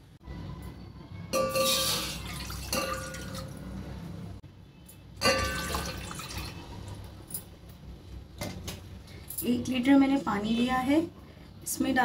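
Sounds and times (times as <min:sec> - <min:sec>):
water pouring into metal pot: 0:01.7 - 0:03.6, 0:05.4 - 0:06.9.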